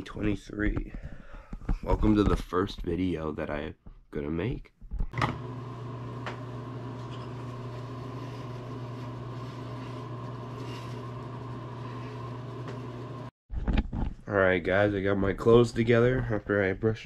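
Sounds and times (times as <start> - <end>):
small electric motor humming: 5.3 - 13.3.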